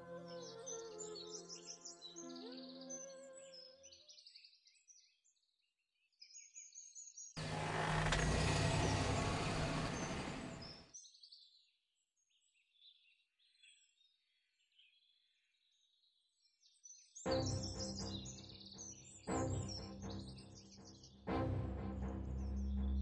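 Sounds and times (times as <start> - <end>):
birds chirping: 7.4 - 11.0, 17.3 - 23.0.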